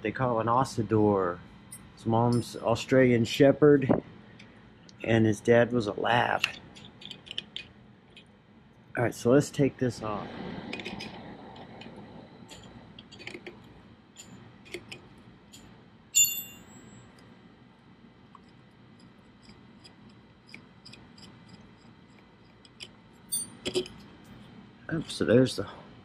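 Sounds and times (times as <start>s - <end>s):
wrench clicking and scraping: 6.4s - 8.3s
ringing metal clink: 15.5s - 17.0s, 23.3s - 23.7s.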